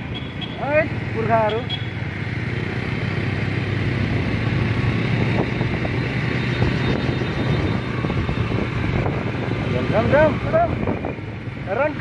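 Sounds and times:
motorbike engine hum: 0:00.0 - 0:12.0
wind rushing over microphone: 0:03.9 - 0:12.0.

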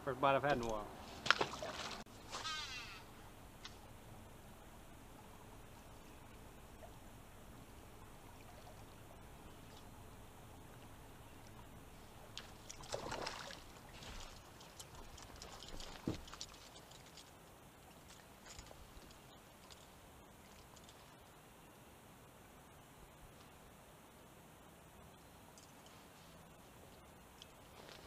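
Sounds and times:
light clicks of tackle: 0:12.3 - 0:19.9, 0:20.5 - 0:21.2, 0:25.5 - 0:28.0
fish splashing at surface: 0:12.4 - 0:17.2.

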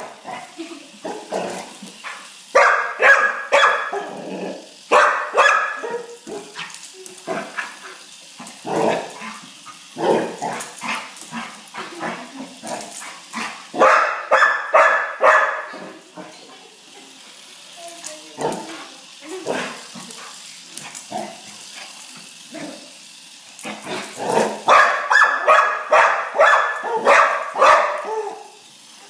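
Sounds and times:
dog barking: 0:02.6 - 0:04.1, 0:04.9 - 0:06.5, 0:13.8 - 0:15.7, 0:24.7 - 0:28.5.

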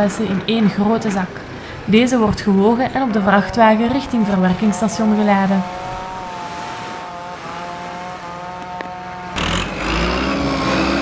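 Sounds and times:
tractor engine rumbling: 0:03.2 - 0:11.0
engine whine: 0:04.2 - 0:11.0.

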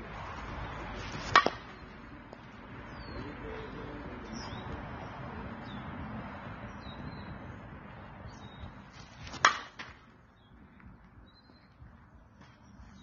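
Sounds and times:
bat cracking against ball: 0:01.1 - 0:01.8, 0:09.2 - 0:10.0.

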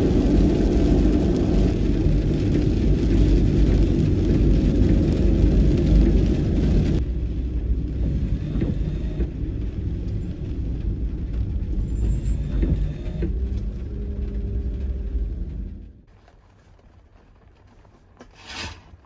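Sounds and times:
van engine and tyres: 0:00.0 - 0:19.0.

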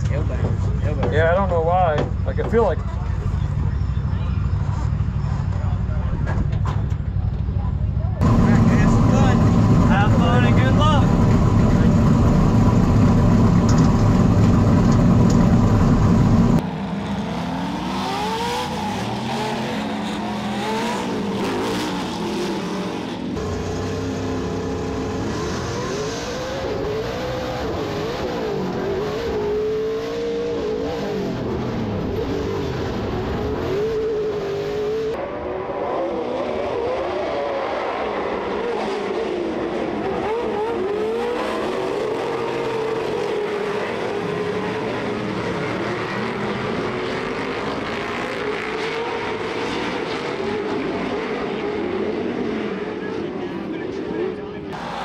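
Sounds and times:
truck engine running: 0:02.1 - 0:16.6
racing engines revving: 0:08.2 - 0:55.0.

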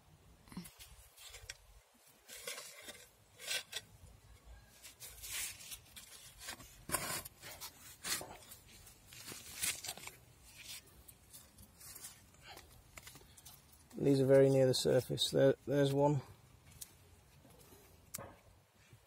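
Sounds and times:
garden fork scraping soil: 0:00.7 - 0:13.4.

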